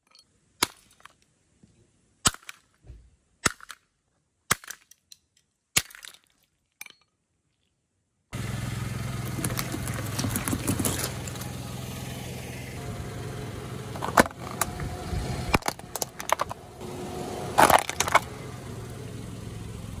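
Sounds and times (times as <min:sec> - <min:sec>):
car engine running: 0:08.4 - 0:20.0.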